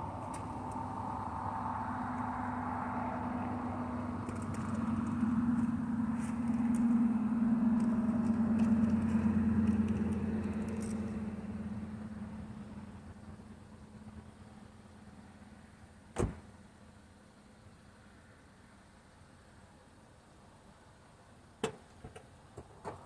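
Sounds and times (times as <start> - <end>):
car engine running: 4.2 - 14.6.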